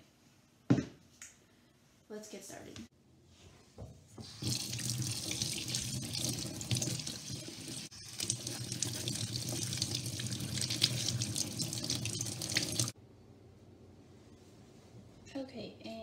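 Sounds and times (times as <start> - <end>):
faucet running into steel sink: 4.2 - 13.0
water splashing on vegetables: 4.2 - 13.0.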